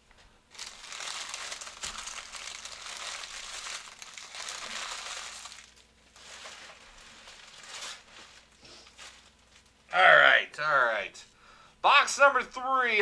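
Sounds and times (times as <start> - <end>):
foil wrappers crinkling: 0.5 - 9.9.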